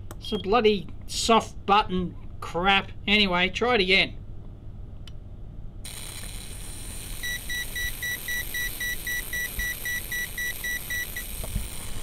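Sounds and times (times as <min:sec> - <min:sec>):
high-pitched hiss of arcing: 0:05.9 - 0:12.0.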